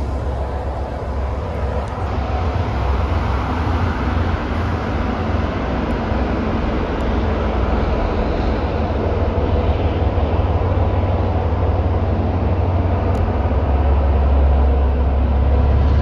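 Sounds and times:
diesel locomotive engine rumble: 0.0s - 16.0s
train noise: 0.0s - 16.0s.

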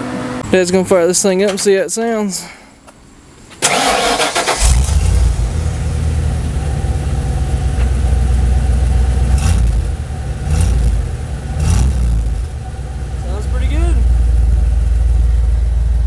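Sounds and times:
truck engine rumbling: 3.0s - 16.0s
engine revving: 3.6s - 16.0s.

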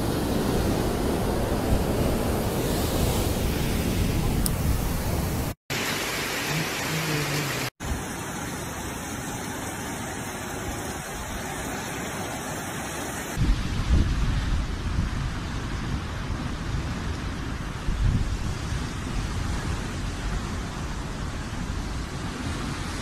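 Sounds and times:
wind buffeting microphone: 0.0s - 5.6s, 13.3s - 23.0s
heavy rain falling: 5.2s - 13.4s.

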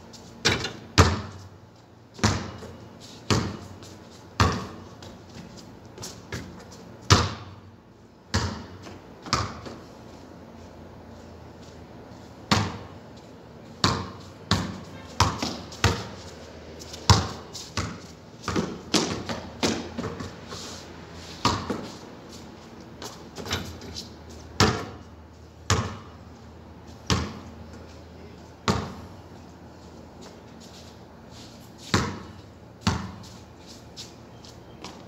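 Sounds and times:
basketball bouncing on concrete: 0.4s - 1.5s, 2.1s - 7.6s, 8.3s - 9.9s, 12.4s - 13.0s, 13.7s - 20.5s, 21.4s - 22.0s, 24.6s - 27.8s, 28.6s - 29.1s, 31.8s - 33.4s.

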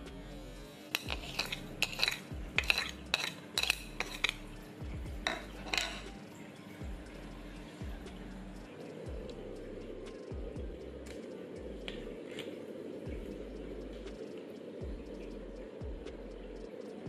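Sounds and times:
metal spoon clinking ceramic bowl: 0.9s - 4.5s, 5.2s - 6.2s.

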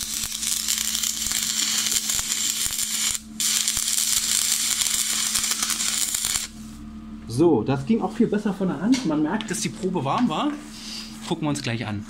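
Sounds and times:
welding arc crackling: 0.0s - 6.6s.

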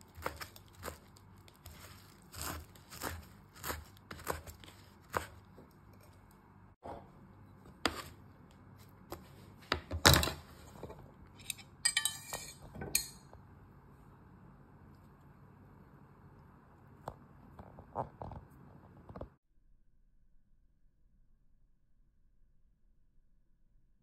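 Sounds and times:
knife chopping on wooden board: 0.0s - 5.6s
crackling rustle of noodles: 0.0s - 6.3s.

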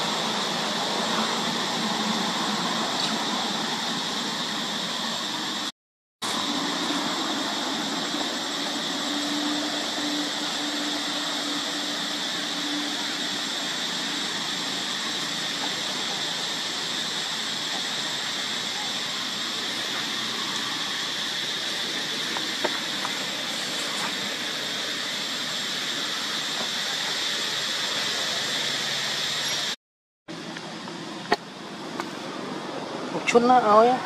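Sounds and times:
faint high whine: 0.0s - 34.0s
outdoor background hiss: 0.0s - 34.0s.

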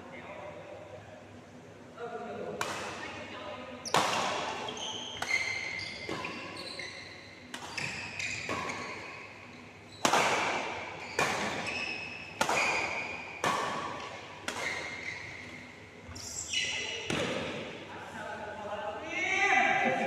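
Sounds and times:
racket hitting shuttlecock: 2.6s - 3.1s, 3.8s - 6.6s, 7.5s - 9.0s, 10.0s - 15.4s, 17.0s - 17.8s
shoes squeaking on court: 3.8s - 17.2s.

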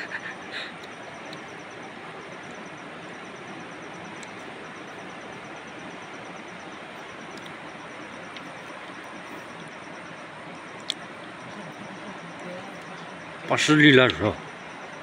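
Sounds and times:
insect chirps: 0.0s - 15.0s.

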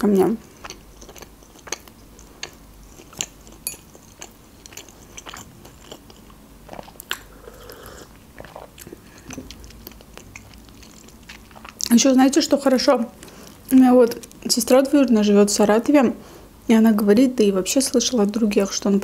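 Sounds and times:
person chewing food: 0.4s - 12.0s
person sipping drink: 6.7s - 9.8s.

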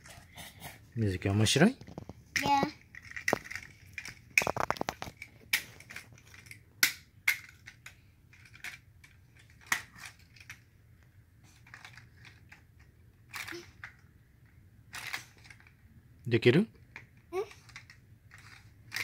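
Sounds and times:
plastic toy parts clicking: 1.9s - 10.6s, 13.3s - 14.0s, 14.9s - 15.8s, 16.9s - 19.0s.

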